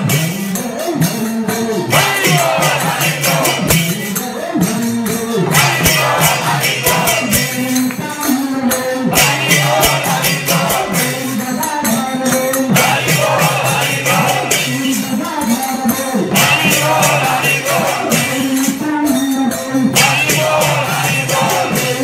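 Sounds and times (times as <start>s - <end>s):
jingling hand percussion: 0.0s - 22.0s
group of voices chanting: 1.8s - 3.8s, 5.4s - 7.7s, 9.1s - 11.4s, 12.7s - 15.0s, 16.3s - 18.6s, 20.0s - 22.0s.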